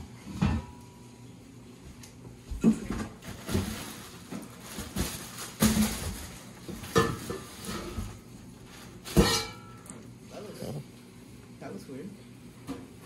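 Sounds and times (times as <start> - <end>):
plastic wrapping rustling: 3.1 - 9.6.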